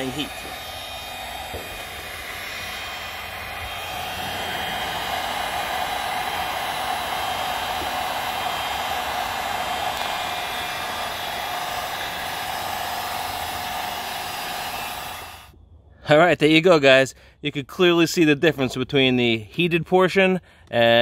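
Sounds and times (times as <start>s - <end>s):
heat gun fan whining: 0.0s - 15.6s.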